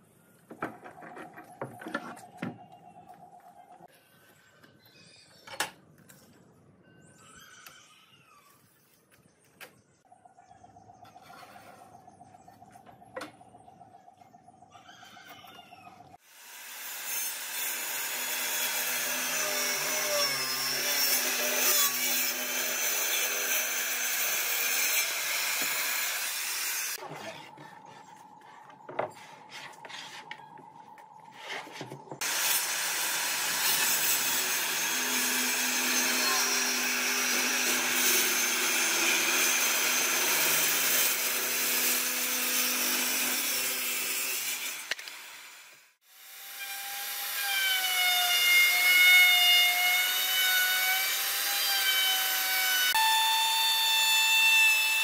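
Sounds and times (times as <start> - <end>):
circular saw cutting wood: 16.2 - 27.0, 32.2 - 55.0.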